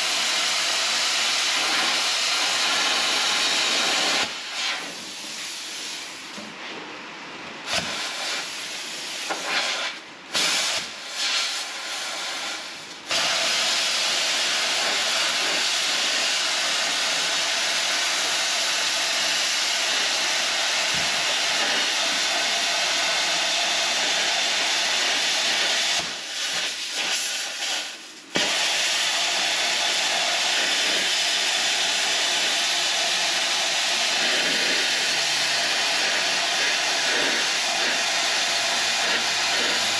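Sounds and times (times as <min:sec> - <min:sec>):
plasma cutter hissing: 0:00.0 - 0:06.2, 0:07.6 - 0:39.9.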